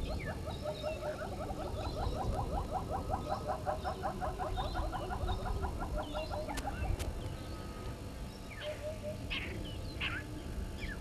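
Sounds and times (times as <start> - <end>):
faint high bird chirps: 3.2 - 11.0.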